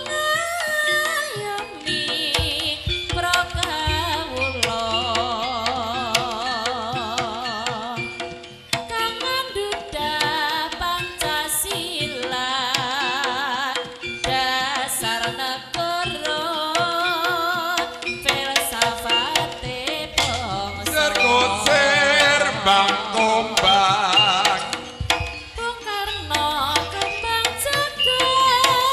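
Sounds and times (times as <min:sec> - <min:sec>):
wavering pitch-bending melody: 0:00.9 - 0:08.7, 0:19.2 - 0:28.9
steady drum strokes: 0:18.0 - 0:28.9.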